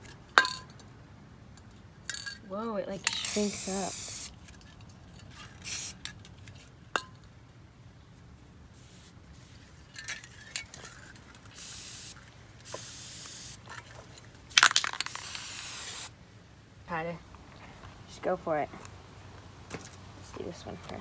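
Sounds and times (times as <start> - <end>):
spray-paint can hissing: 3.1 - 4.4, 5.6 - 6.0, 8.8 - 9.1, 11.5 - 13.6, 15.0 - 16.1.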